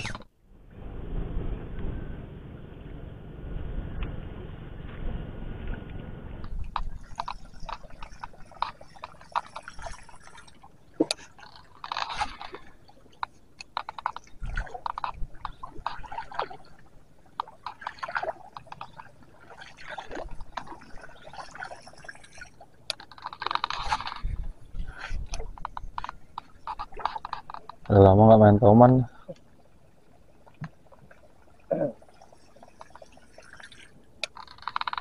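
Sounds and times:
lure gurgling and splashing water: 6.4 - 27.9, 30.0 - 35.0.

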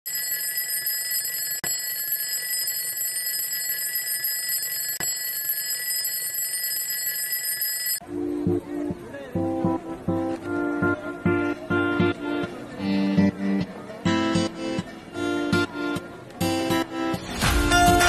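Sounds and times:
alarm clock ringing: 0.1 - 8.0.

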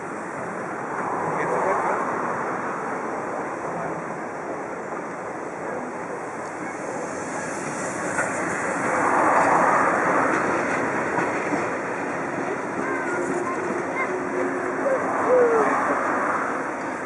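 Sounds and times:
steam locomotive rolling past: 0.0 - 17.0.

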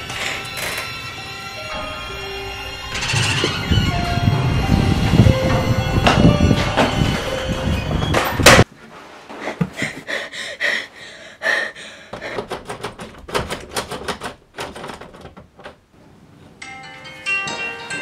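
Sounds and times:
loud dense noise: 0.6 - 8.6
door knob and lock rattling: 12.2 - 15.8.

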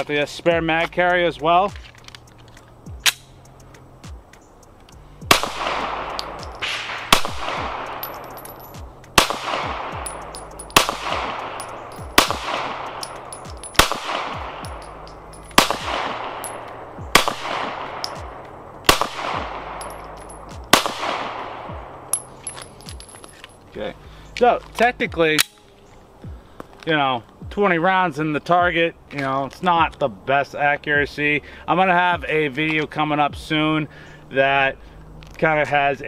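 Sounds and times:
sharp click: 1.9 - 5.0
pistol shots with ringing echo: 5.3 - 23.1.

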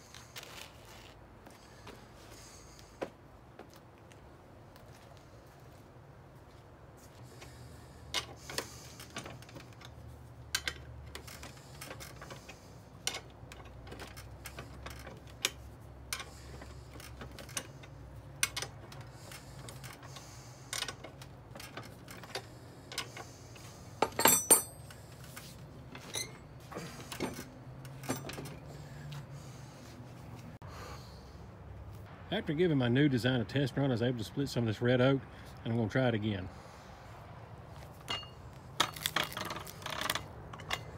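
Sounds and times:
metal tools clinking: 24.0 - 25.2, 25.9 - 28.6, 38.0 - 40.9.

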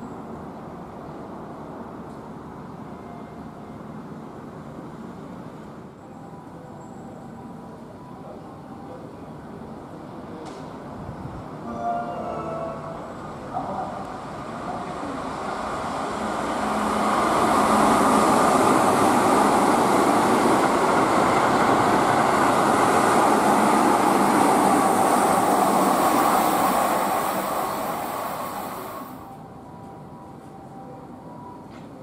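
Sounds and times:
train wheels rumbling on rails: 13.9 - 29.2.

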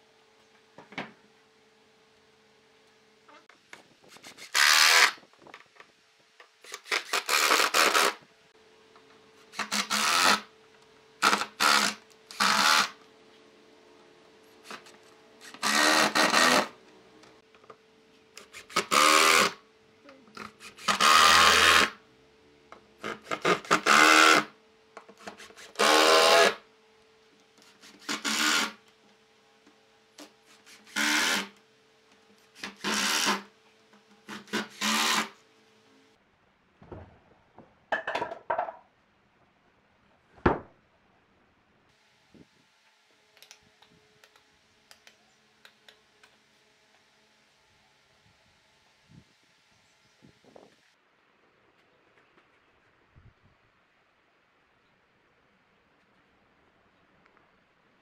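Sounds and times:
impact driver driving screws: 4.3 - 5.2, 9.6 - 10.4, 11.2 - 13.0, 14.7 - 16.7, 30.8 - 31.5, 32.6 - 33.5, 34.3 - 35.4.

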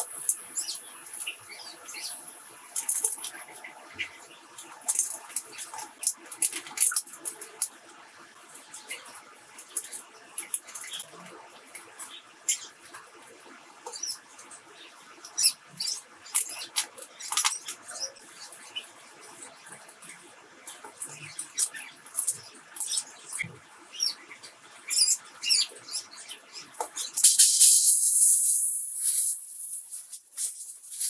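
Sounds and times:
small wet sounds: 0.0 - 27.3
toothbrush scrubbing plastic: 26.9 - 31.0.

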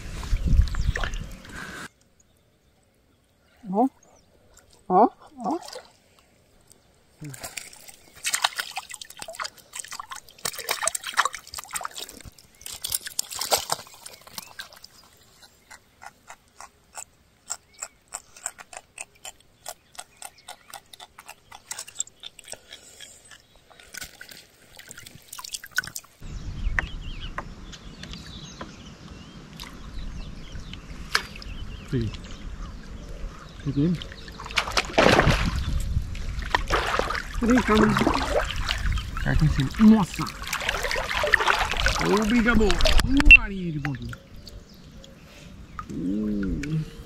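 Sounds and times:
fish splashing at surface: 40.1 - 43.1.

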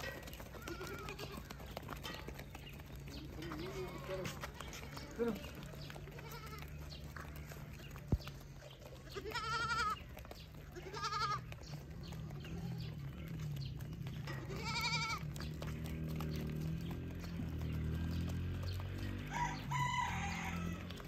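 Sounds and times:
goats bleating: 0.0 - 2.4, 3.0 - 8.0, 8.9 - 13.5, 14.2 - 15.5.

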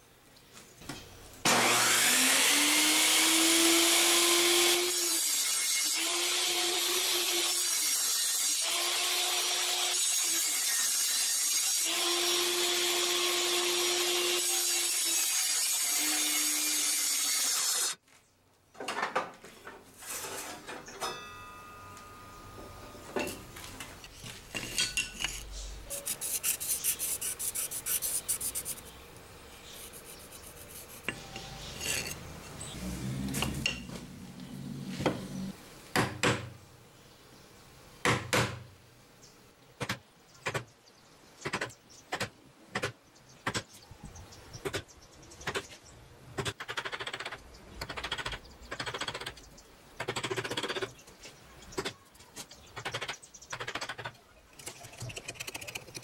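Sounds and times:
table saw cutting wood: 1.4 - 18.0, 29.8 - 35.6
wood and tools handled: 18.8 - 21.3, 23.0 - 28.8.

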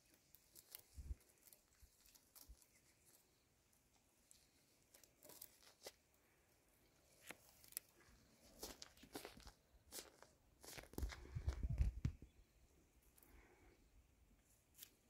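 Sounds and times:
leafy branches rustling and snapping: 0.4 - 3.2.

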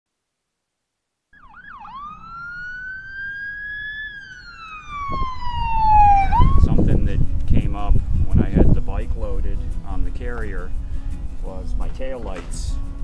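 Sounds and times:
emergency vehicle siren: 1.4 - 6.8.

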